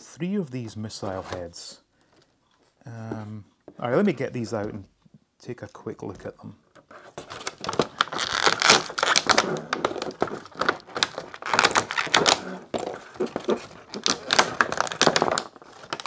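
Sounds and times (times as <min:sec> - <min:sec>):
plastic packaging crinkling: 0:07.1 - 0:16.0.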